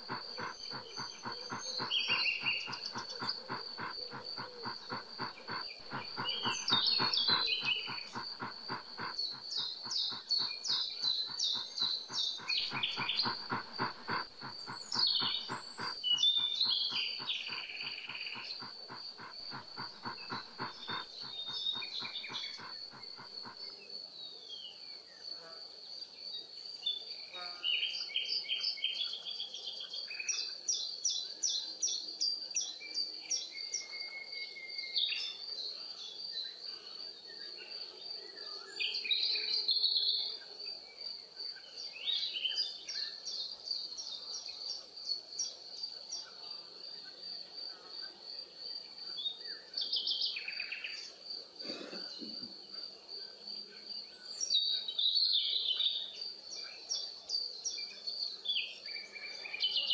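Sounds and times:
birds chirping: 0:00.0 - 0:23.6.

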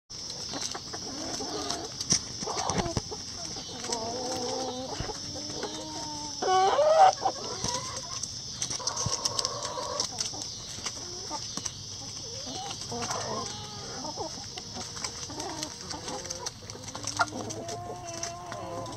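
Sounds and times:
chickens clucking: 0:00.2 - 0:18.9.

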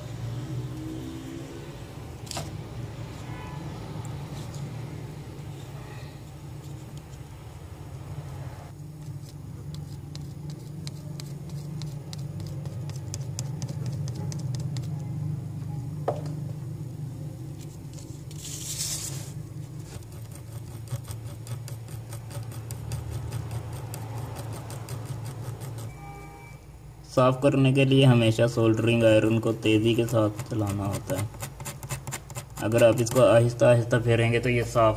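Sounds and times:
steady low hum: 0:00.0 - 0:27.5.

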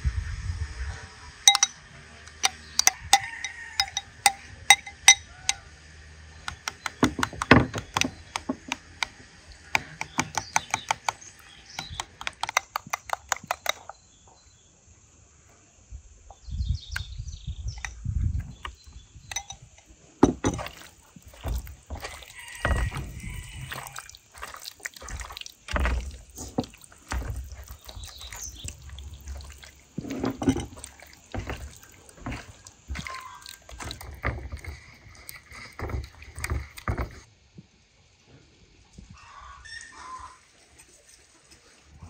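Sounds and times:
spoon clinking against glass bowl: 0:01.5 - 0:01.8, 0:02.4 - 0:05.6, 0:19.3 - 0:20.8
wet squelches of marinade: 0:20.5 - 0:37.3.

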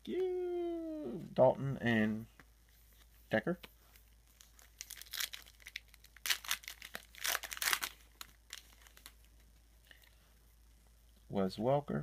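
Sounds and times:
foil wrapper tearing and crinkling: 0:04.4 - 0:09.3.

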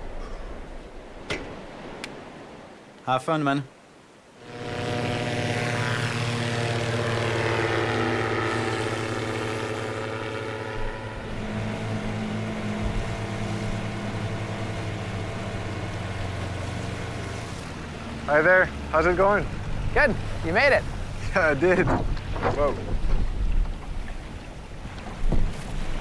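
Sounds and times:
light plane propeller engine: 0:04.4 - 0:26.0.

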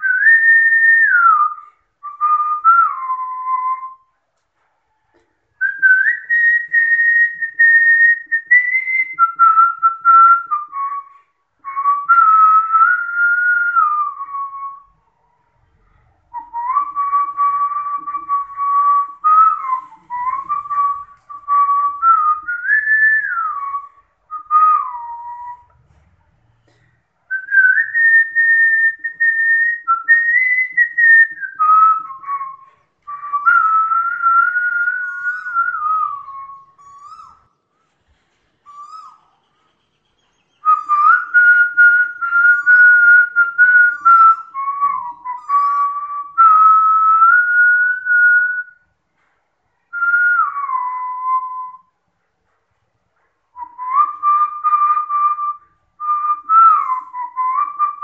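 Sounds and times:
person whistling a melody: 0:05.6 - 0:14.9, 0:16.3 - 0:25.8, 0:26.7 - 0:37.5, 0:38.7 - 0:39.3, 0:40.5 - 0:48.8, 0:49.9 - 0:52.0, 0:53.6 - 0:58.0.

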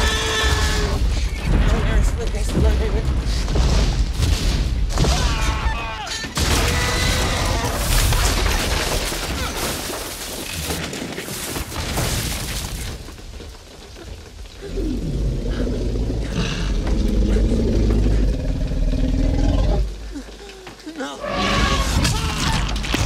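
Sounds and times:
wooden hut crashing and splintering: 0:00.0 - 0:14.6, 0:21.4 - 0:23.0
heavy rain: 0:06.5 - 0:22.9
deep rumbling growl: 0:14.5 - 0:20.2.

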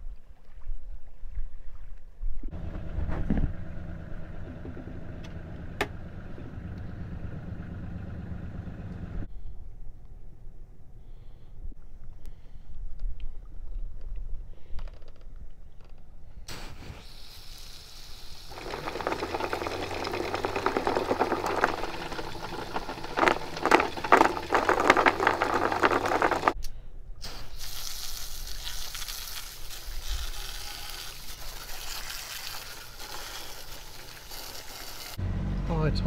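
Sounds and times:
soft hiss: 0:16.4 - 0:18.6
water jet spraying onto netting: 0:27.2 - 0:35.2.

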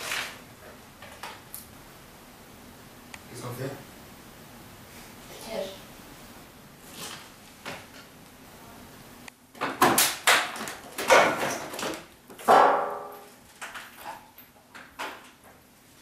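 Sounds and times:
objects knocking and clattering: 0:09.5 - 0:15.6.

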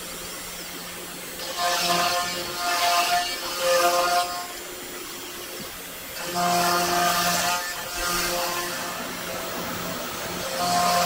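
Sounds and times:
router spindle cutting wood hiss: 0:01.4 - 0:11.0.

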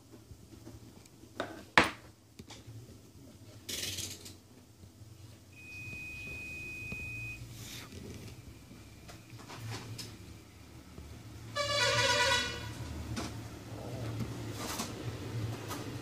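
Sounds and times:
high-pitched beep: 0:05.6 - 0:07.4.

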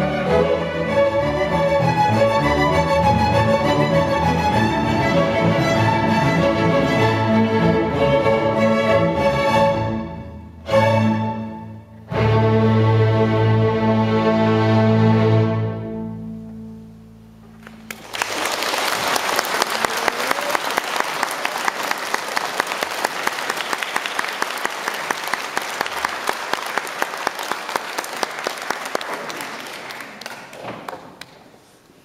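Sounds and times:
audience applauding: 0:17.6 - 0:31.5.

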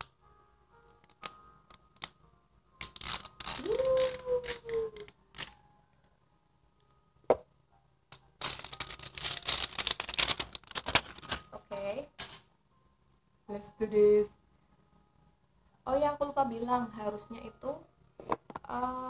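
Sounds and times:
shrink-wrap tearing and crackling: 0:00.9 - 0:02.2, 0:02.8 - 0:05.6, 0:08.4 - 0:11.6.

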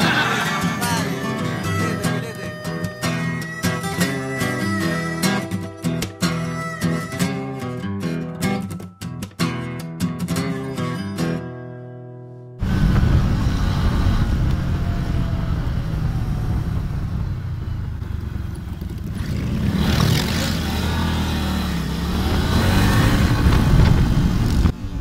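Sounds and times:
wind noise: 0:12.6 - 0:19.9, 0:22.0 - 0:25.0
motorcycle engines rumbling: 0:12.6 - 0:25.0.

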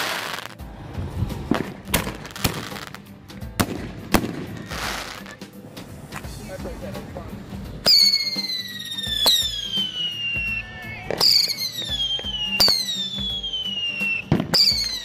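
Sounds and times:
firework whistles: 0:00.0 - 0:03.0, 0:04.2 - 0:05.5, 0:07.8 - 0:15.0.

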